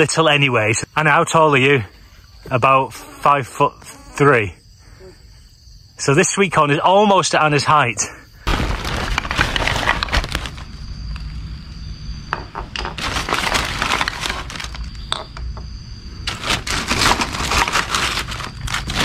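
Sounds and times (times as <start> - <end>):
plastic bag rustling: 8.5 - 10.8, 12.9 - 15.1, 16.2 - 19.0.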